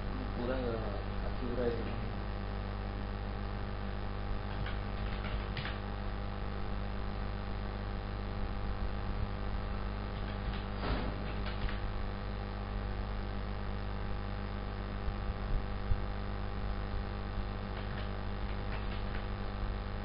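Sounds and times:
electrical mains hum: 0:00.0 - 0:20.0
computer keys clicking: 0:04.5 - 0:05.8, 0:10.1 - 0:11.9, 0:17.7 - 0:19.3.

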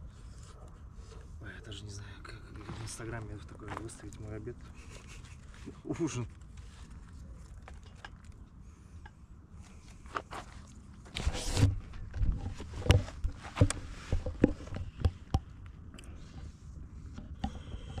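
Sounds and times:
irregular knocks and clicks: 0:12.0 - 0:15.8.

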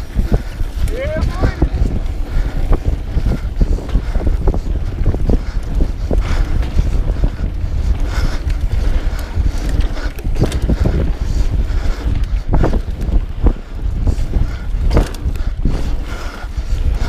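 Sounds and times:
bike knocking and rattling: 0:00.0 - 0:17.0
wind noise on microphone: 0:00.0 - 0:17.0.

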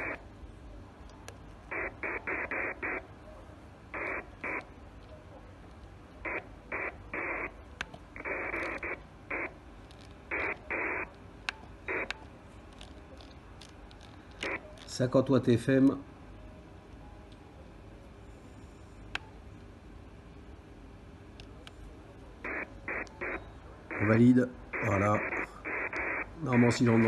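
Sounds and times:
low steady hum: 0:00.0 - 0:27.0
radio voice bursts from loudspeaker: 0:23.9 - 0:27.0.

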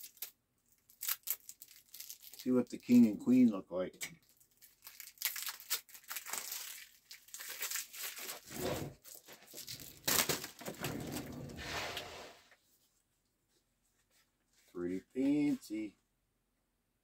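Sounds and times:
wrapper crinkling and tearing: 0:00.0 - 0:03.0, 0:04.2 - 0:11.3.

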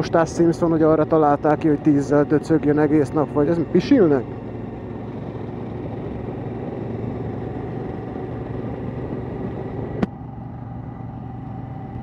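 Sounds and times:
motorcycle engine running: 0:00.0 - 0:12.0
road noise: 0:00.0 - 0:12.0
wind noise: 0:03.7 - 0:10.1.

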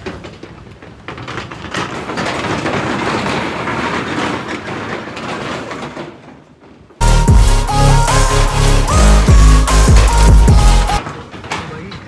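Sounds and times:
tyres rattling over steel deck: 0:00.0 - 0:12.0.

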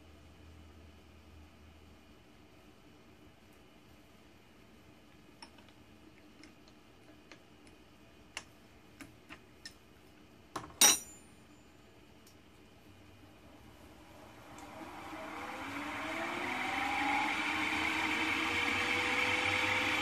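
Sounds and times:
sharp metal clink with ring: 0:10.8 - 0:11.3.

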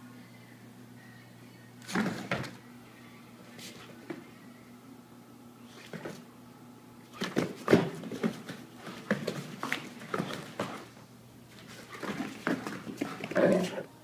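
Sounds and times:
dogs scuffling: 0:07.1 - 0:13.8.

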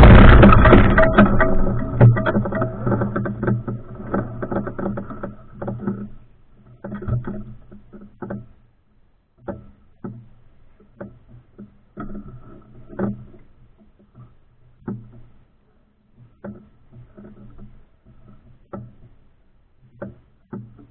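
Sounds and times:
short knocks and rattles: 0:00.0 - 0:08.6.

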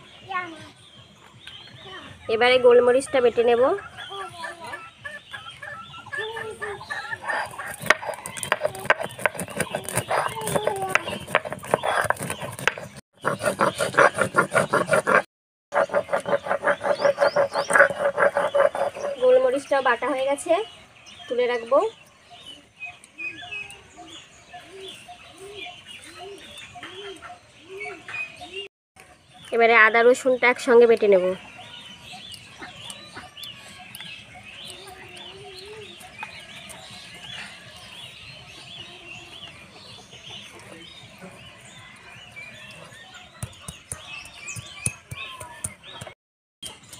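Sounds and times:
birds chirping: 0:00.0 - 0:46.9
stone roller rasping on stone slab: 0:07.2 - 0:19.4.

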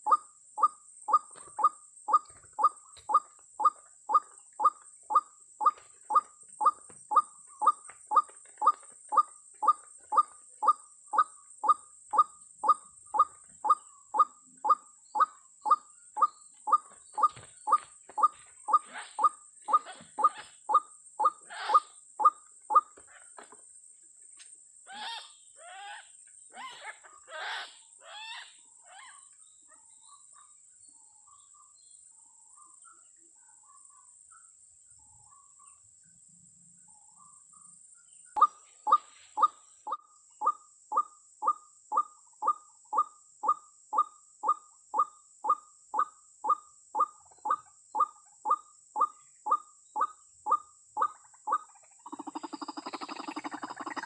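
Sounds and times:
waterhen calling: 0:52.1 - 0:54.0.

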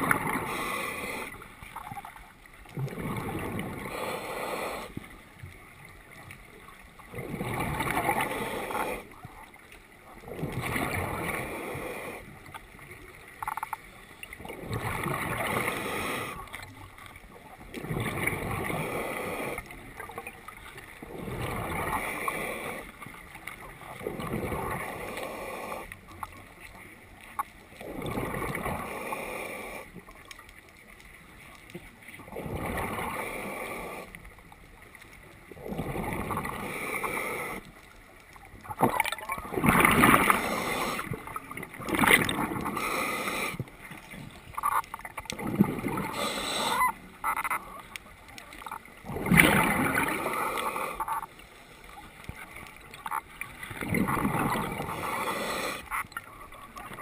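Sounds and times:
regulator hissing inhales: 0:03.8 - 0:05.0, 0:42.7 - 0:43.6, 0:46.1 - 0:46.8, 0:55.0 - 0:56.0
bubbling exhales: 0:44.6 - 0:47.0, 0:49.0 - 0:51.2, 0:53.1 - 0:56.0.

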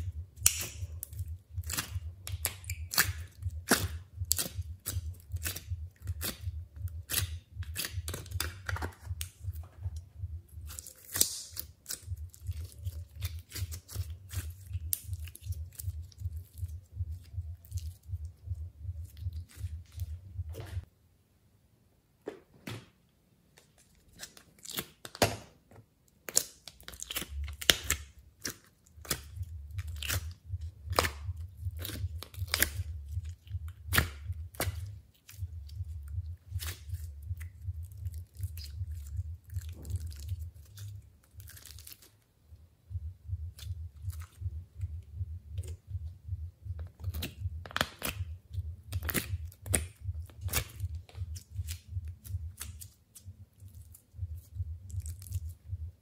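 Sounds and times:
foam slime crunchy pops and squishes: 0:00.4 - 0:06.4, 0:10.7 - 0:15.9, 0:48.9 - 0:51.8
low handling rumble: 0:15.5 - 0:20.9.

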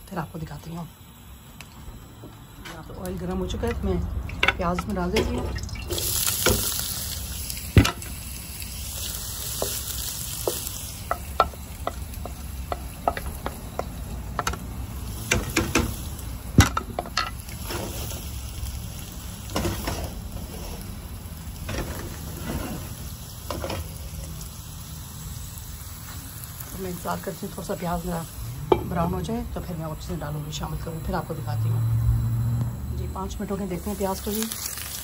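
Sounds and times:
onion sizzling in frying pan: 0:00.0 - 0:35.0.

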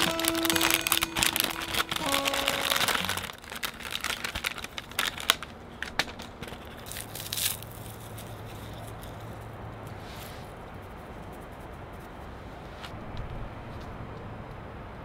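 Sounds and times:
acoustic guitar music: 0:00.0 - 0:03.5
crinkling and rustling: 0:00.0 - 0:10.4.

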